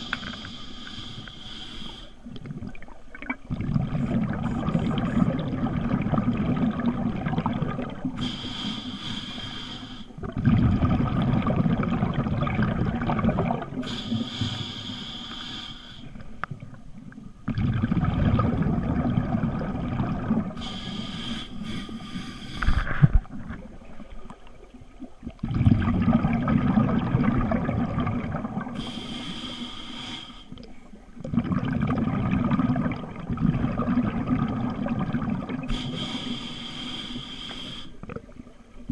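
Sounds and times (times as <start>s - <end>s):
regulator inhalation hiss: 0.0s - 2.2s, 8.2s - 10.2s, 13.8s - 16.2s, 20.6s - 22.9s, 28.8s - 30.6s, 35.7s - 38.0s
exhaled bubbles gurgling: 0.0s - 15.0s, 16.1s - 29.7s, 30.5s - 38.9s.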